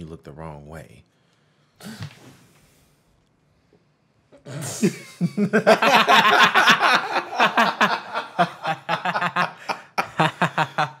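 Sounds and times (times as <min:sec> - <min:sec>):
men laughing: 0:04.6 - 0:11.0.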